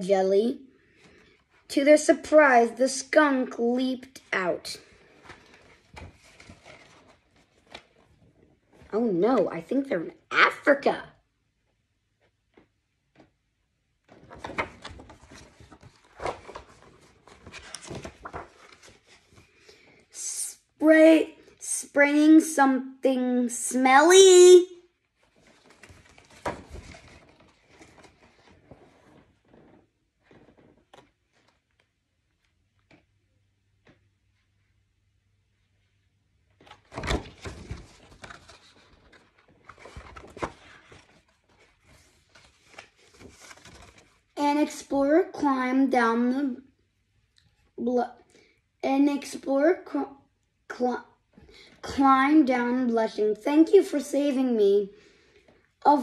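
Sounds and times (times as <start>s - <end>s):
paper rustles and soft knocks: 4.2s - 9.6s, 12.0s - 20.0s, 25.0s - 44.4s
book pages turning: 4.2s - 9.7s, 14.0s - 19.9s, 25.2s - 33.2s, 36.6s - 44.4s
soft knocks of book handling: 25.3s - 34.5s.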